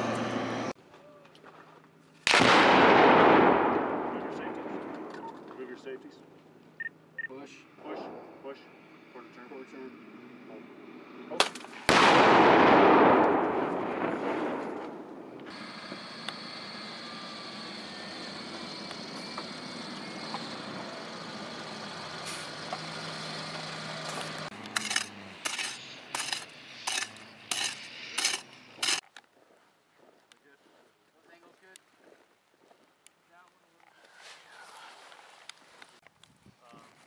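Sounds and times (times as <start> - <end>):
diesel vehicles driving past: 0.0 - 0.8, 7.5 - 11.4, 15.5 - 28.9
explosion boom: 2.3 - 5.4, 11.9 - 15.4.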